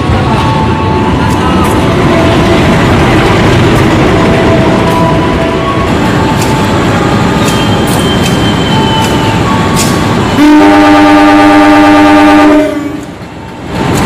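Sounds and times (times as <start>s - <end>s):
train rumbling: 0.0s - 14.0s
locomotive horn: 9.8s - 13.1s.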